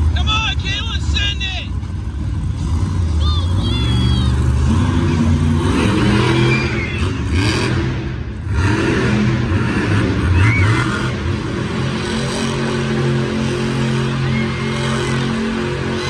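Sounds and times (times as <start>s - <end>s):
truck engine revving: 0.0s - 16.0s.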